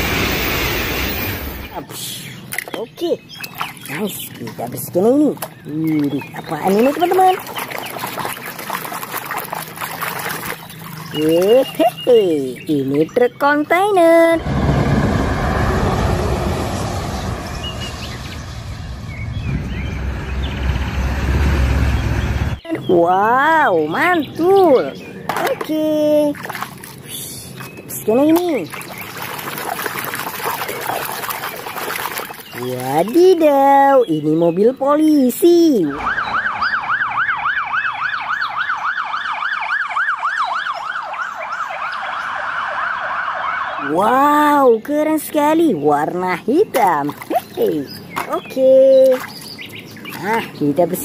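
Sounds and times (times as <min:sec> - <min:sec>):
birds chirping: 0:01.1 - 0:14.4, 0:15.7 - 0:51.0
diesel truck engine rumble: 0:14.4 - 0:22.6
police siren yelping: 0:35.9 - 0:44.0.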